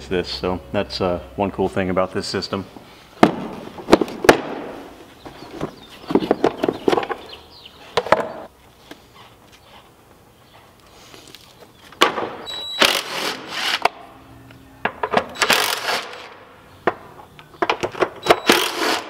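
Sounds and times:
cordless drill running: 0:18.4 - 0:19.0.

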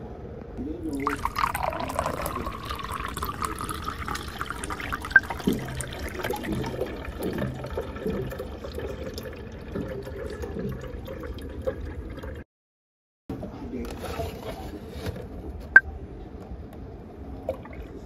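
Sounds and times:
low gurgling: 0:00.6 - 0:12.4
water pouring into glass jar: 0:00.8 - 0:12.4.

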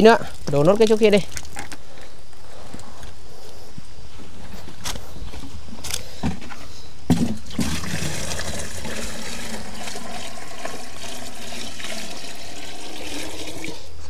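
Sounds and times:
water pouring and splashing: 0:07.2 - 0:13.9.

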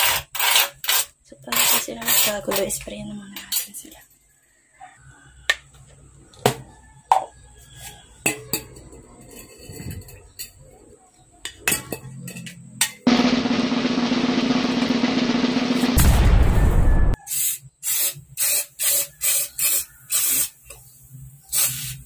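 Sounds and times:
aerosol can spraying: 0:17.3 - 0:20.6, 0:21.5 - 0:22.0.

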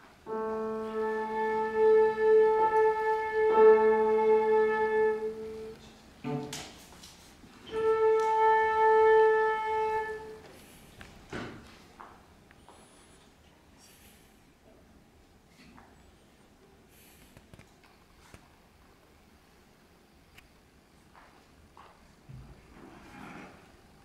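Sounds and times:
flute holding long note: 0:00.2 - 0:06.5, 0:07.6 - 0:10.7
cello holding long note: 0:00.2 - 0:06.7, 0:07.6 - 0:10.7.

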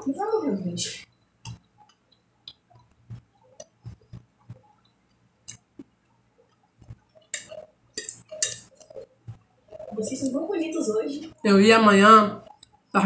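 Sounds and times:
person chewing: 0:01.5 - 0:09.9.

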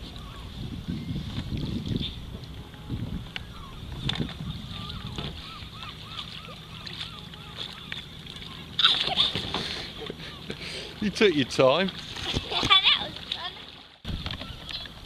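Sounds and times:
bird calling: 0:00.0 - 0:00.6, 0:02.8 - 0:11.0
water sloshing: 0:00.0 - 0:15.0.

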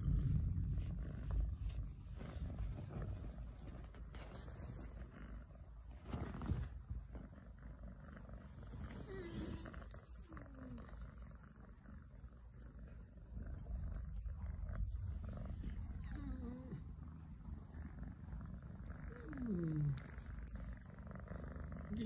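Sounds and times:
kitten purring: 0:00.0 - 0:22.0.

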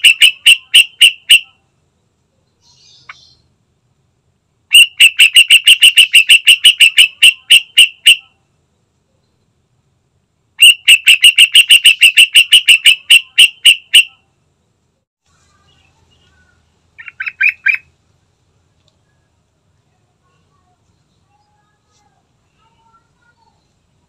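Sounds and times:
bird calling sharp repeated notes: 0:00.0 - 0:01.7, 0:04.7 - 0:08.4, 0:10.6 - 0:14.3, 0:17.0 - 0:18.0.

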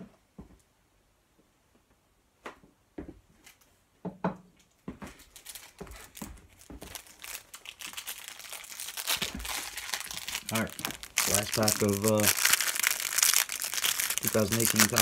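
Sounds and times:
card pack wrappers crinkling: 0:05.2 - 0:15.0.

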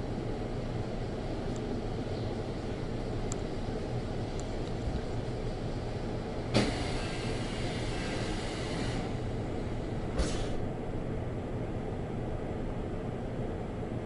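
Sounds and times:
train interior rumble: 0:00.0 - 0:14.0
compressed air hiss: 0:06.6 - 0:09.2, 0:10.1 - 0:10.6.

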